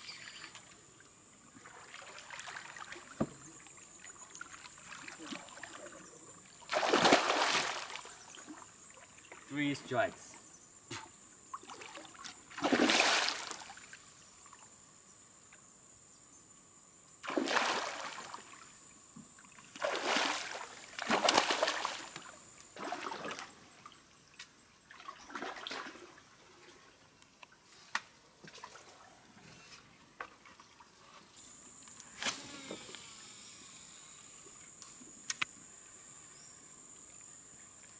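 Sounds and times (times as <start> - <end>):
fish splashing in water: 6.6 - 8.5, 11.6 - 13.9, 17.2 - 18.6, 19.7 - 23.5.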